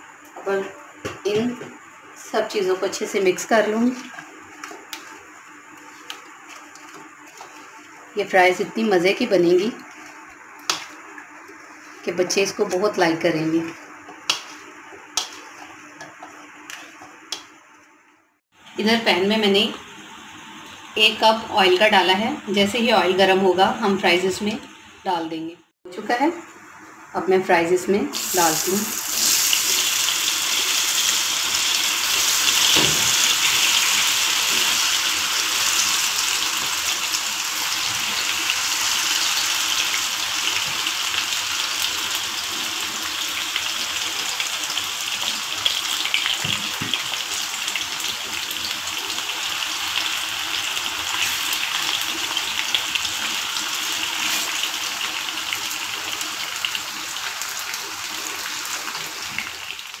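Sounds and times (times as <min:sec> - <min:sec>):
fries sizzling in hot oil: 0:02.2 - 0:17.6, 0:27.5 - 1:00.0.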